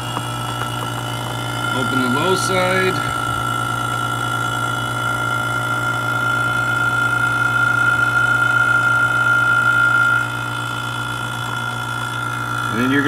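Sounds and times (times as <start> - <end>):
vacuum pump humming and whining: 0.0 - 13.0.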